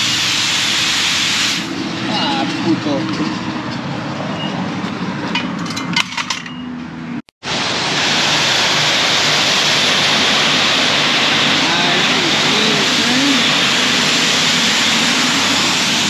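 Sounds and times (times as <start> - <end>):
high-pressure water spray hissing: 0.0 - 1.8, 7.4 - 16.0.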